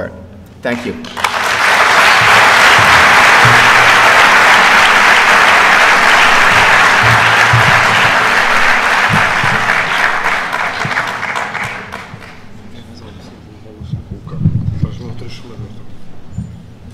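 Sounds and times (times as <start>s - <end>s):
audience applauding: 0.8s - 12.6s.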